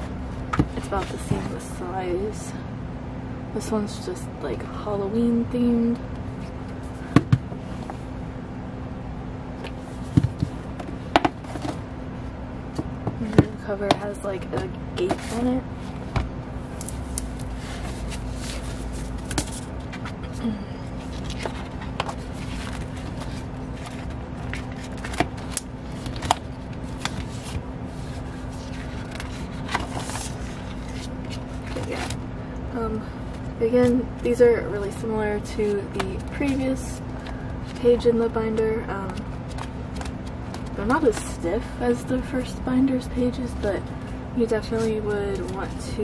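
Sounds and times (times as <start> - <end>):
steady low hum: 0.0 - 46.0
pages rustling: 15.1 - 20.2, 21.0 - 32.2, 39.1 - 41.2.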